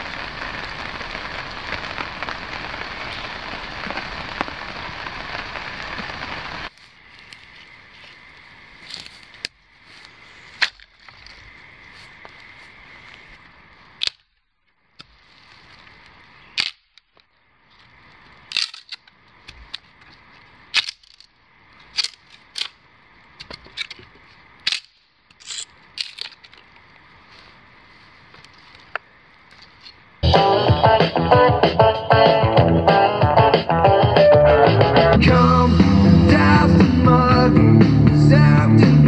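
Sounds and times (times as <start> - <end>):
background hiss: 0.0 - 39.0
branch cracking against tree trunk: 8.8 - 11.6, 14.0 - 17.3, 18.4 - 22.8
guitar music: 30.2 - 39.0.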